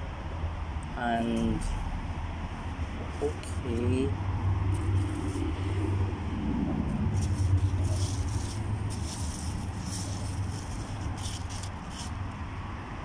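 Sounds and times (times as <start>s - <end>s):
low outdoor rumble: 0.0s - 13.0s
faint rustling: 6.9s - 12.2s.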